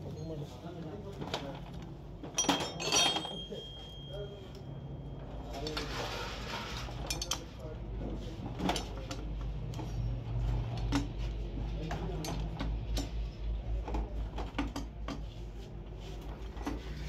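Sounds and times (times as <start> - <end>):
tools clinking on metal: 2.3 - 4.7, 7.0 - 7.6.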